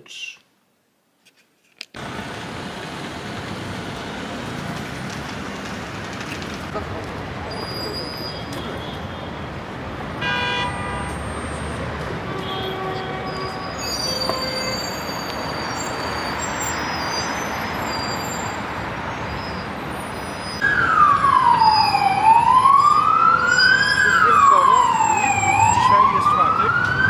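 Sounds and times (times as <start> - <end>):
city traffic noise: 1.3 - 27.0
horn-like tone: 10.2 - 11.0
emergency vehicle siren wailing: 20.6 - 27.0.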